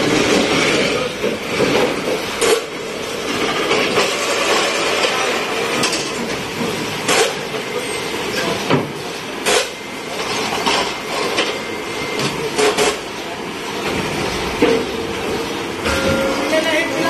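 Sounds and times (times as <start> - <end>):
machine clatter: 0.0 - 7.8.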